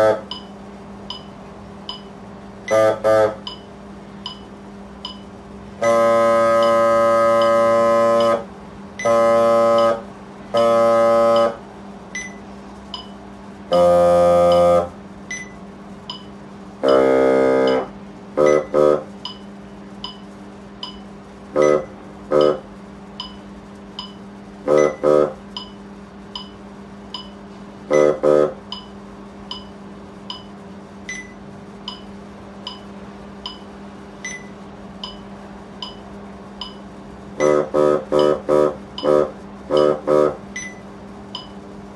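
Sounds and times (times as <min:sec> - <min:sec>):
bass clarinet playing: 0:00.0 - 0:00.3, 0:02.7 - 0:03.5, 0:05.8 - 0:11.6, 0:13.7 - 0:14.9, 0:16.8 - 0:19.1, 0:21.6 - 0:22.6, 0:24.7 - 0:25.4, 0:27.9 - 0:28.6, 0:37.4 - 0:40.4
steady low hum: 0:00.0 - 0:41.9
faint regular ticking: 0:00.3 - 0:02.2, 0:03.4 - 0:05.4, 0:11.3 - 0:13.2, 0:14.5 - 0:17.0, 0:19.2 - 0:22.6, 0:23.2 - 0:27.4, 0:28.7 - 0:40.0, 0:40.6 - 0:41.6.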